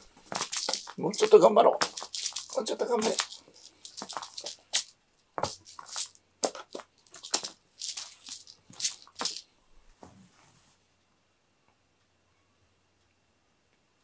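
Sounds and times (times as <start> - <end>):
ribbon streamers swishing on mats: 0.0 - 9.4.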